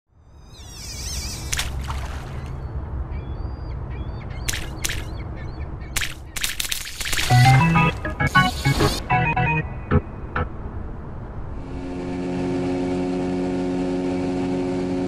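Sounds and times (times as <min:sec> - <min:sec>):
birds calling: 0:00.3 - 0:09.0
steady low rumble: 0:07.2 - 0:15.0.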